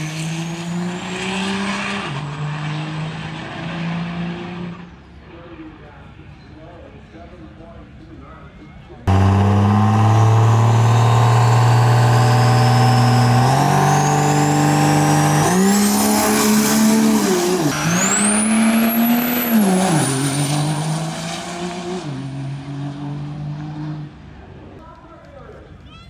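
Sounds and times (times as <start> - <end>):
diesel truck engine revving: 0.0 - 4.8, 9.1 - 24.1.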